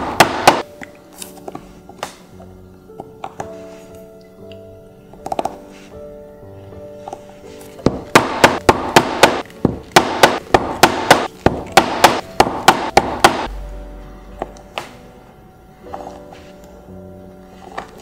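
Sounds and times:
mallet knocking on punching iron: 0.0 - 0.6, 7.8 - 13.5.

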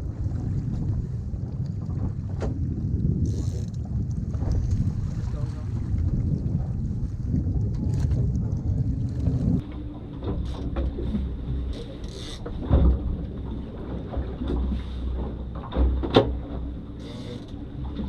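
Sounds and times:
wind noise: 0.0 - 9.6
low rumble of boat: 0.0 - 18.0.

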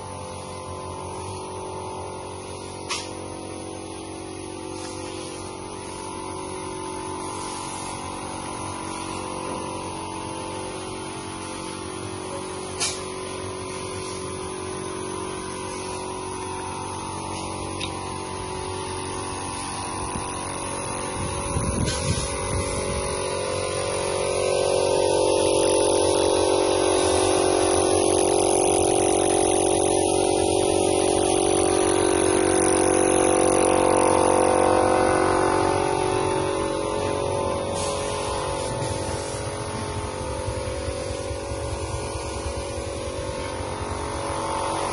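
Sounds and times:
motor running: 0.0 - 44.9.

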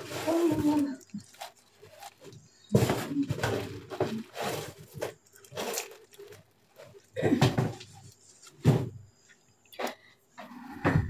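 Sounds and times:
plastic bags crinkling: 0.0 - 8.7.

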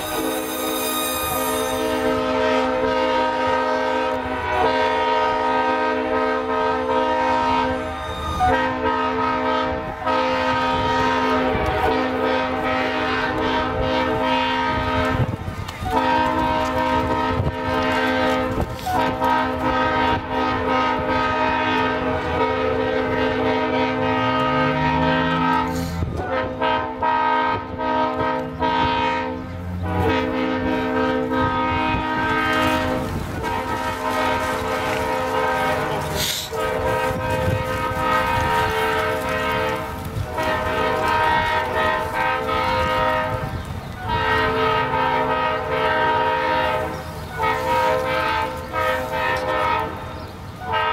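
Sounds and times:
locomotive air horn blasts: 0.0 - 50.9.

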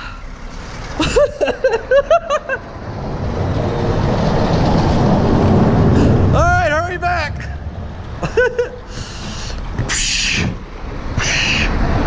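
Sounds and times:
traffic rumbling over bridge: 0.0 - 12.0
man talking: 6.3 - 7.6.

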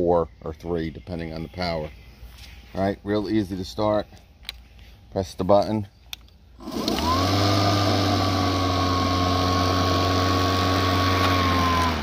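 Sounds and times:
lawn mower motor whining and humming: 6.6 - 12.0.

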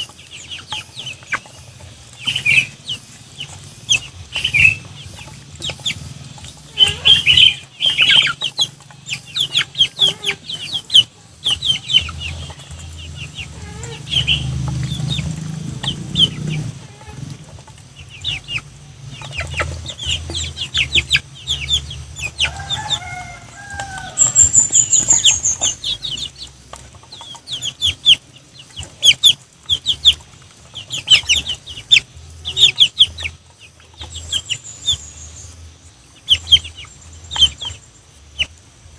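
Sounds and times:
soft cluck: 0.0 - 23.2, 24.0 - 35.0
beaks pecking at food: 0.0 - 35.0
high bird chirps: 24.0 - 26.4.

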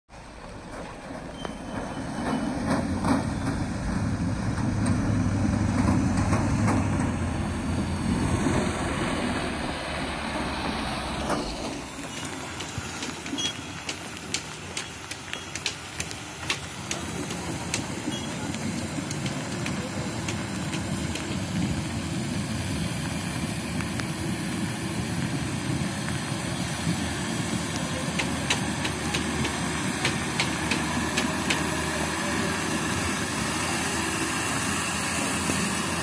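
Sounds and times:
water washing around vehicle: 0.1 - 36.0
rushing river water: 0.2 - 36.0
pickup engine running: 2.4 - 36.0
sharp clicks and knocks: 11.2 - 21.6, 28.1 - 31.8.

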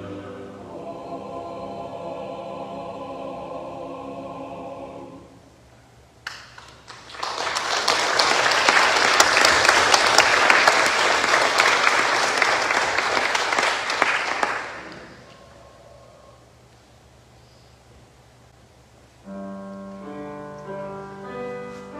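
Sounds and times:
people clapping: 6.2 - 15.4.

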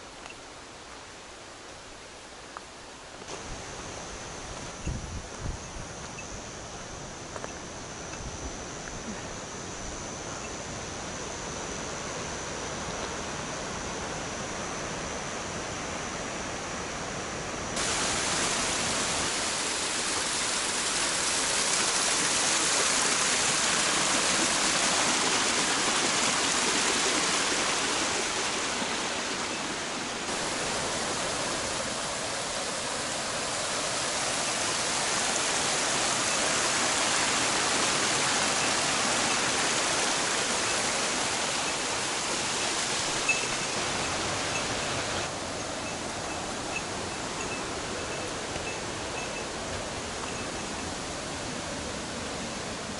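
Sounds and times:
stream rushing over rocks: 0.0 - 4.8, 17.8 - 52.9.

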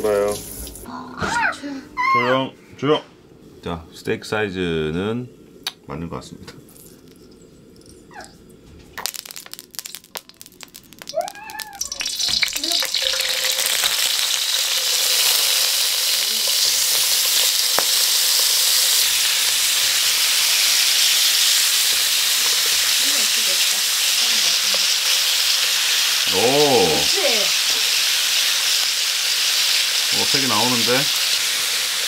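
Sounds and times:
liver sizzling in a wok: 9.0 - 32.0.

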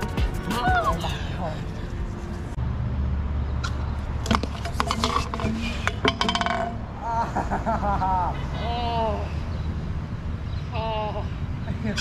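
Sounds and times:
scooter wheels rolling on concrete: 3.6 - 6.9
scooter crashing onto concrete: 4.2 - 6.8.

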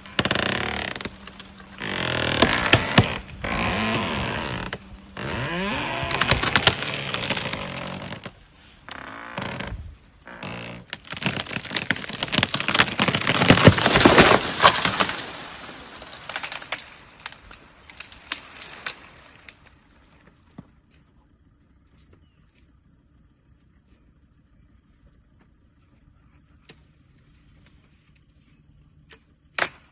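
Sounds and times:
tree crashing down: 0.0 - 20.1
tree cracking and splintering: 0.0 - 21.0, 29.5 - 29.9
branches crackling: 0.0 - 29.9.

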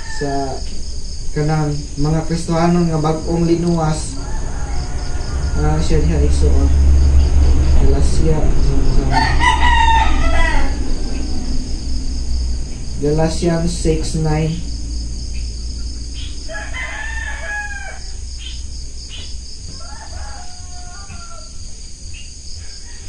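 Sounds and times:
rooster crowing: 0.0 - 1.2, 2.7 - 13.0, 14.7 - 23.0
pulsing insect chirping: 0.0 - 23.0.

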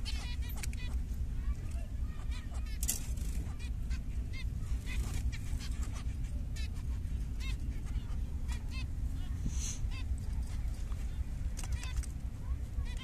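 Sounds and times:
brief hiss: 9.5 - 9.8.

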